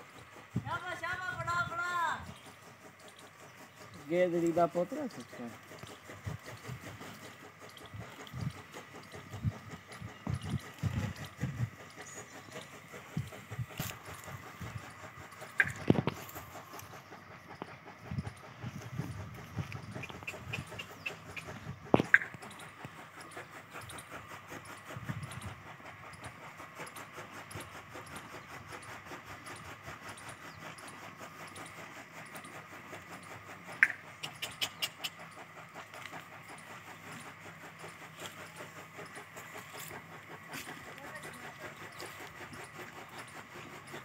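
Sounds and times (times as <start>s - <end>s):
camel chewing: 2.2s - 44.0s
sharp clicks: 33.8s - 35.2s.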